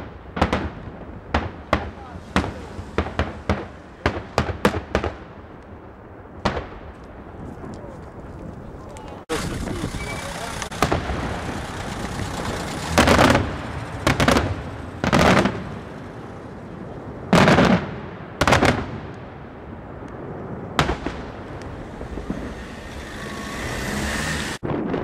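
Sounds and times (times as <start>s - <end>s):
fireworks bursting: 0.0s - 25.0s.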